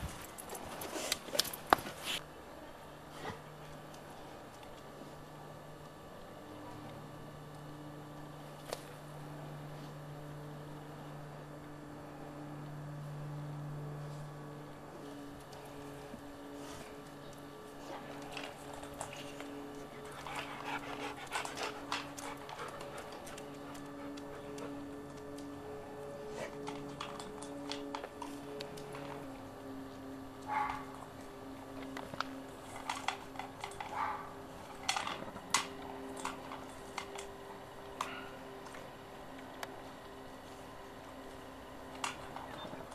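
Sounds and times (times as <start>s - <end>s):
electrical hum with hiss: 0.0s - 42.9s.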